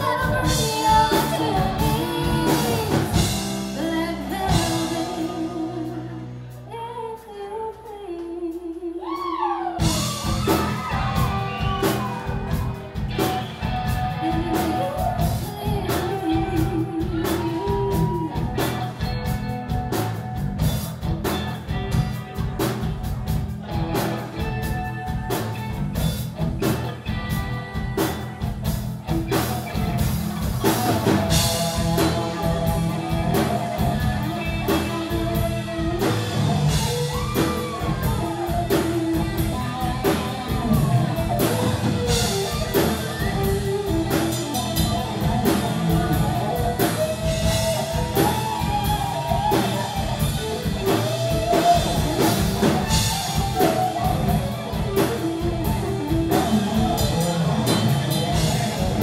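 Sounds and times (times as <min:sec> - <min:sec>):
drum kit: 0:00.0 - 0:07.3, 0:09.0 - 0:59.0
woman singing: 0:00.0 - 0:12.2, 0:13.9 - 0:19.3
bass: 0:00.0 - 0:59.0
electric guitars: 0:00.0 - 0:59.0.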